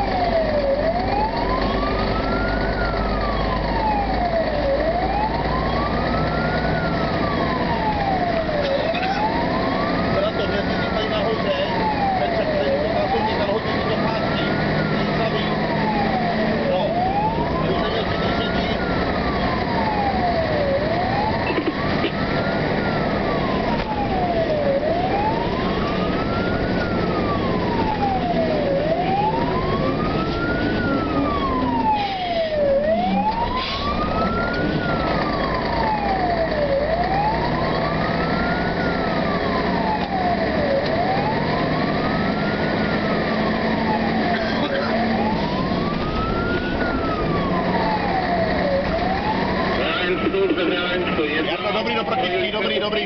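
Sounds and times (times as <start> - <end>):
fire engine siren wailing: 0.0 - 53.0
truck engine and road noise: 0.0 - 53.0.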